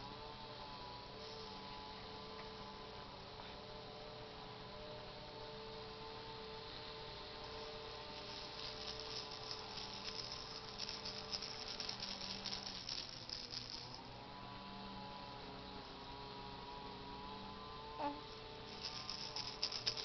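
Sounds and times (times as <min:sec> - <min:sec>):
faint steady hum: 0:00.0 - 0:20.0
plastic baby rattle shaking: 0:08.2 - 0:14.0, 0:18.7 - 0:20.0.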